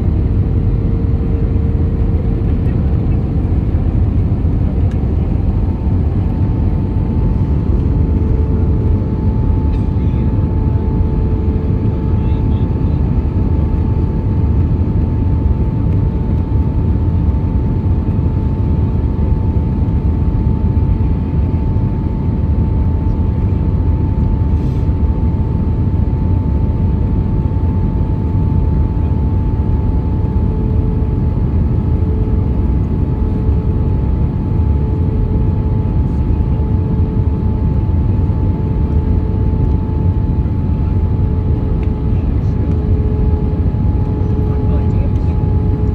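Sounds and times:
airliner engines and airflow rumble: 0.0s - 45.9s
pulsing low hum: 0.0s - 45.9s
thin engine whine: 24.0s - 45.9s.

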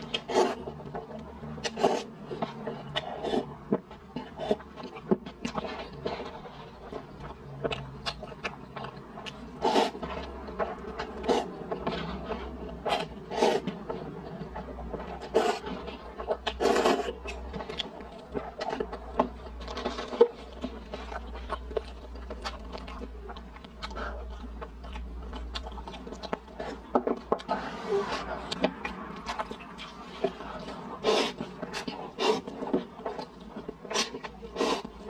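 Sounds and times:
slurping noodles: 0.1s - 0.8s, 1.5s - 3.5s, 9.5s - 10.2s, 10.9s - 13.9s, 15.1s - 17.3s, 29.6s - 33.2s, 33.9s - 35.0s.

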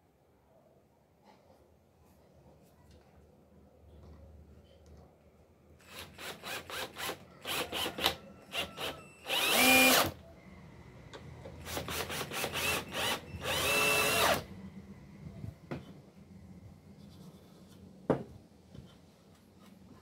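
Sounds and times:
cordless drill into wood: 5.8s - 10.2s, 11.7s - 14.5s.

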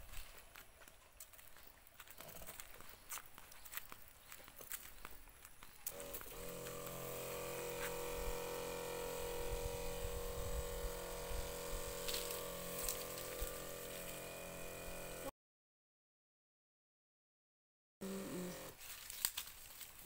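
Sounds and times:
electric pump humming: 5.9s - 15.3s, 18.0s - 18.8s.

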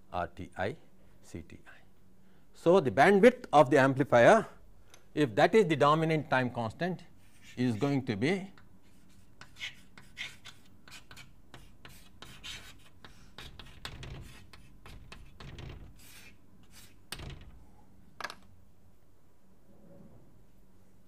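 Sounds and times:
pen scratching on surface: 8.8s - 17.0s.

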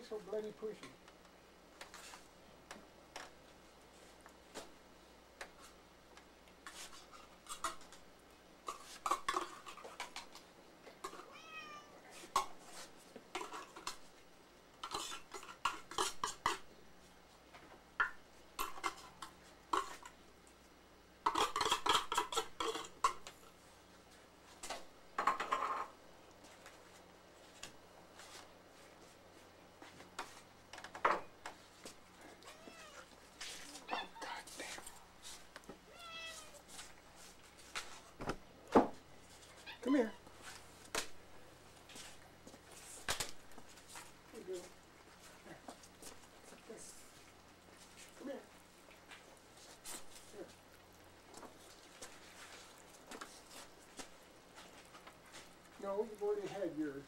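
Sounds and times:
cats meowing: 11.1s - 12.0s, 32.3s - 34.5s, 35.9s - 36.6s, 39.6s - 40.3s.

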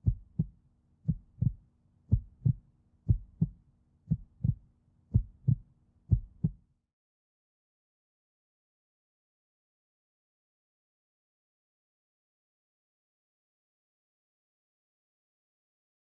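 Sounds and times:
heartbeat thumps: 0.0s - 0.5s, 1.1s - 6.6s.

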